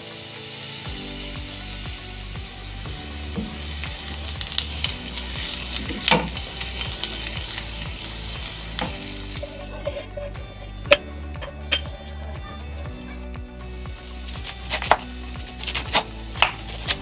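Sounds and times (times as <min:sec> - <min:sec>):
onions sizzling in oil: 0:00.0 - 0:10.3, 0:13.7 - 0:17.0
spatula scraping a pan: 0:08.4 - 0:10.4.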